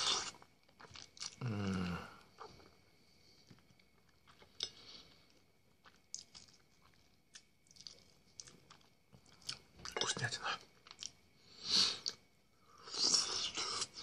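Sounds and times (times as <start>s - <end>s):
chewing meat: 0.1s - 1.4s, 4.0s - 10.0s.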